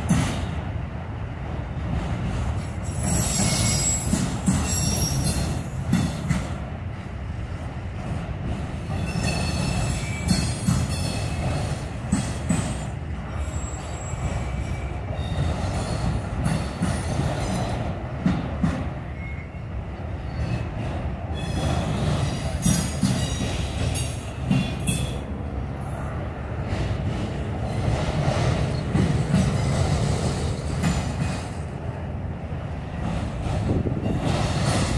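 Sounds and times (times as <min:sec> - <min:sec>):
steel wheels rumbling on rail: 0:00.0 - 0:34.9
high wheel squeal: 0:02.8 - 0:05.6, 0:13.4 - 0:16.1, 0:19.1 - 0:20.7.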